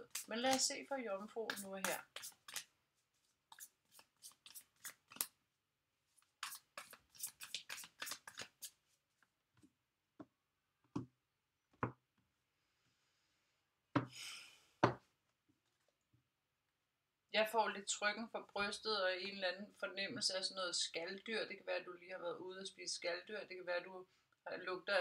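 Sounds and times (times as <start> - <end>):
cards being shuffled: 0.0 - 5.4, 6.2 - 8.9.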